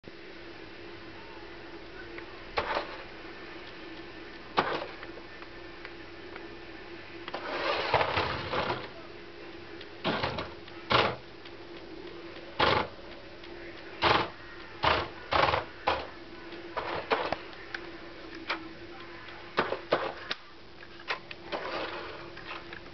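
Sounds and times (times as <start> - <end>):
toy car electric motor whirring: 7.3 - 8.9, 21.5 - 22.6.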